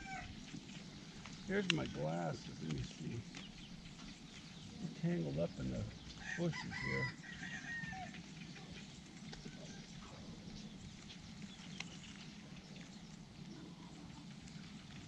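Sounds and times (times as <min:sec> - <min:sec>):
low steady hum: 0:00.0 - 0:15.0
faint clicks and ticks: 0:00.3 - 0:06.2, 0:08.0 - 0:15.0.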